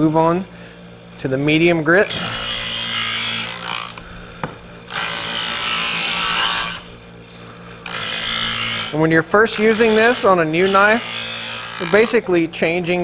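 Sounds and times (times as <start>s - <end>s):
knife blade grinding: 2.0s - 4.2s, 4.8s - 7.0s, 7.8s - 12.2s
electric knife sharpener motor hum: 2.0s - 12.2s.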